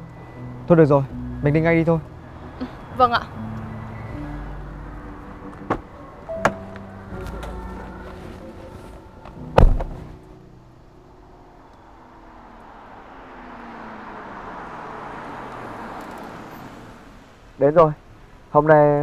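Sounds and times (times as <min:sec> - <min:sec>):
car driving up: 0:00.0 - 0:18.5
car door thud: 0:05.6 - 0:07.6, 0:09.5 - 0:10.2.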